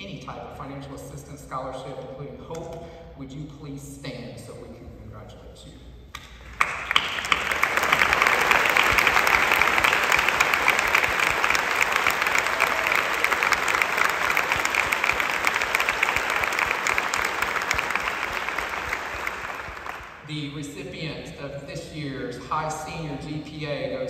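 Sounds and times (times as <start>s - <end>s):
audience clapping: 6.5s - 20.3s.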